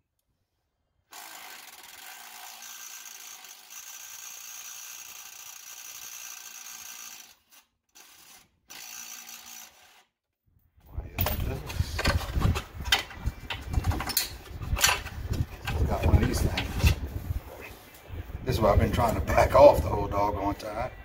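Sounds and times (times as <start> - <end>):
small power tool motor running: 1.1 - 10.1.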